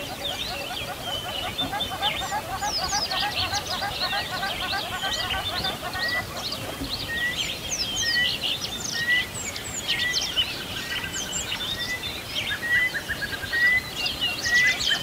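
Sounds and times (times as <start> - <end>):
birds chirping: 0.0 - 9.2.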